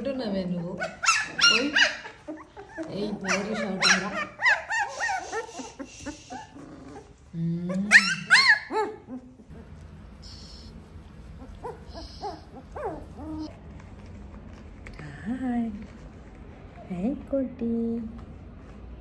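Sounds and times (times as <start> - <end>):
puppies whining and yelping: 0.8 - 7.3, 7.9 - 10.7, 11.4 - 13.5.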